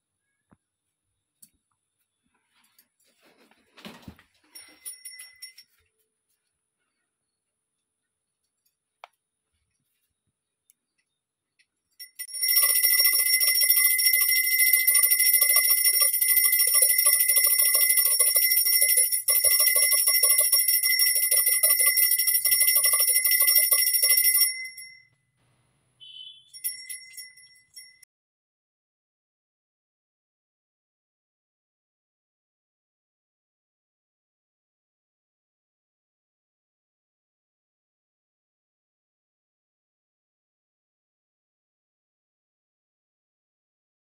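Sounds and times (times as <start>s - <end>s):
bell ringing rapidly: 12.0s - 25.0s, 26.5s - 28.0s.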